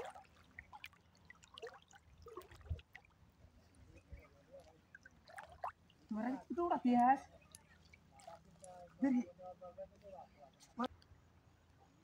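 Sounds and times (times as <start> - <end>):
water sloshing and splashing: 0.0 - 9.0.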